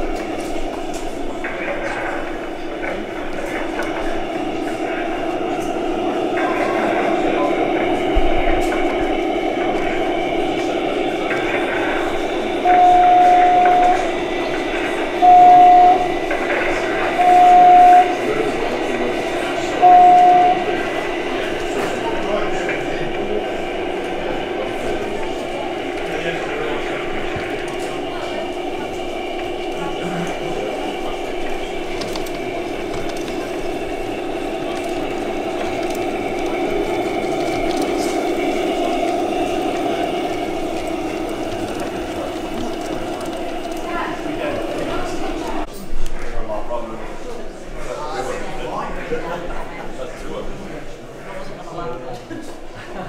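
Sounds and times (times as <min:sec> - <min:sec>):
hall hubbub: 0:00.0 - 0:53.0
model train engine hum: 0:00.0 - 0:53.0
people talking: 0:00.0 - 0:53.0
model train horn: 0:12.5 - 0:16.4, 0:17.0 - 0:18.3, 0:19.8 - 0:20.8.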